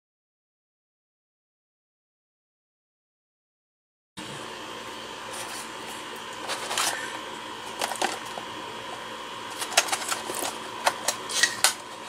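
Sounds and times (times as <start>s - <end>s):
steady background hum: 4.2s - 12.0s.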